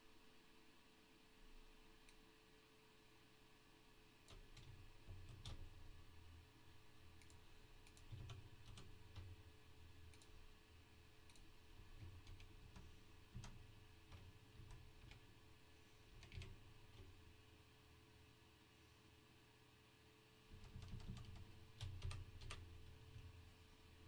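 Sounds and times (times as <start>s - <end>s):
computer mouse clicks: 4.2s - 5.7s, 7.2s - 9.4s, 10.1s - 10.3s, 11.2s - 15.3s, 16.2s - 17.1s, 20.6s - 23.0s
keyboard clicks: 4.3s - 5.7s, 7.2s - 9.3s, 10.1s - 10.3s, 11.2s - 15.2s, 16.2s - 17.1s, 20.6s - 22.7s.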